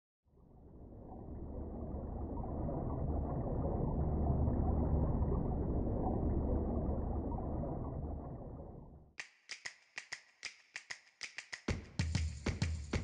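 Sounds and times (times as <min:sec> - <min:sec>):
muffled underwater rumble: 0:00.3 - 0:09.2.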